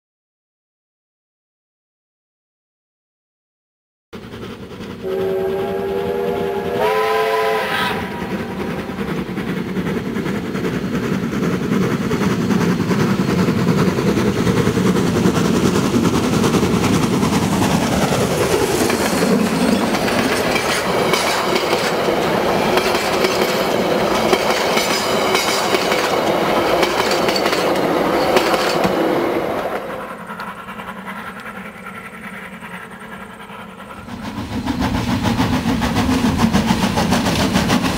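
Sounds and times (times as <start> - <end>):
steam locomotive running past: 4.2 - 37.9
steam locomotive whistle: 5.0 - 9.0
carriages clacking over rail joints: 8.0 - 37.9.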